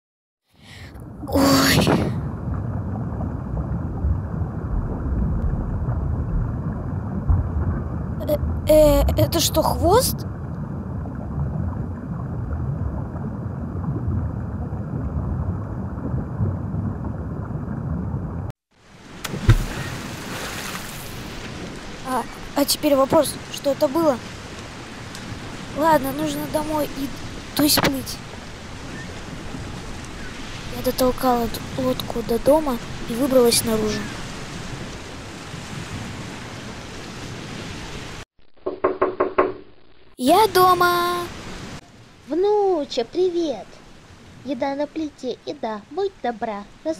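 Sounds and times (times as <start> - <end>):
muffled underwater wash: 0.6 - 38.2, 40.6 - 46.9
rain-like rushing noise: 18.8 - 38.2, 40.3 - 46.9
knocks on a wooden door: 38.7 - 39.6.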